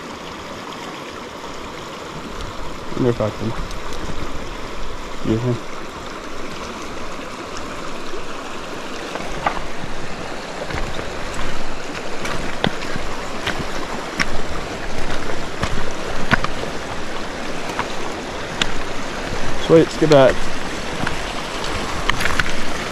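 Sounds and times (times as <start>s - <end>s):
river current rushing: 0.0s - 22.9s
small sharp splashes: 6.3s - 22.9s.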